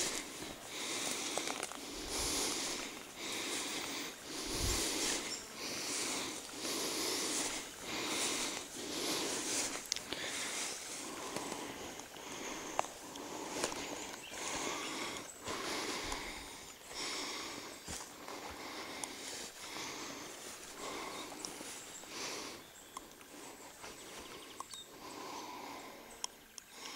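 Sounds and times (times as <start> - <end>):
twigs snapping: 0.0 - 1.8
footsteps swishing through grass: 0.0 - 11.9.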